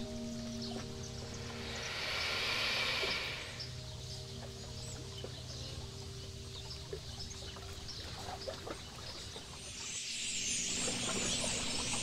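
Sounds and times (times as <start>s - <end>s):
high bird chirps: 0.0s - 5.5s
faint steady tones: 0.0s - 12.0s.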